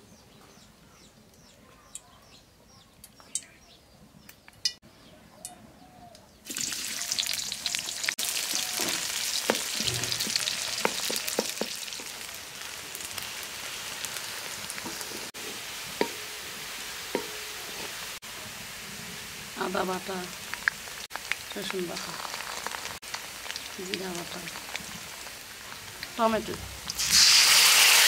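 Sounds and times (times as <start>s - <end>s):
onions sizzling in hot oil: 6.5s - 28.0s
wooden spatula scraping pan: 14.7s - 16.2s.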